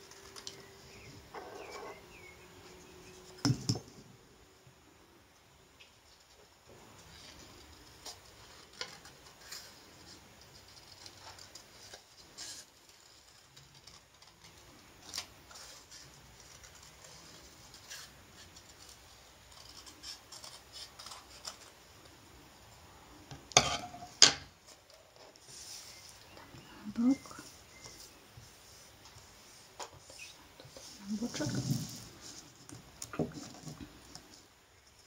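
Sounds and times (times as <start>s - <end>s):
scissors snipping paper: 18.8s - 21.7s.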